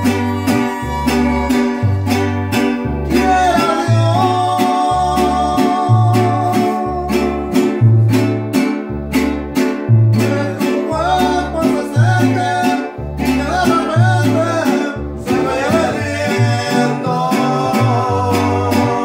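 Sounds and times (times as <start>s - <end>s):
violin melody: 0.0s - 3.1s
deep plucked bass notes: 0.0s - 19.0s
rhythmic guitar strumming: 0.0s - 19.0s.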